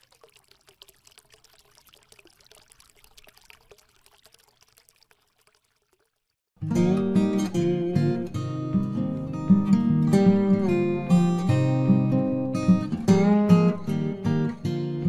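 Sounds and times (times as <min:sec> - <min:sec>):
strummed acoustic guitar: 0:06.6 - 0:15.0.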